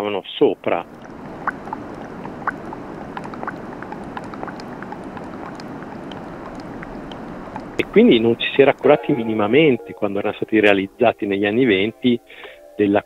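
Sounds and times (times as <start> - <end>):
water running and bubbling: 0.6 - 9.2
droplets plinking: 0.8 - 11.2.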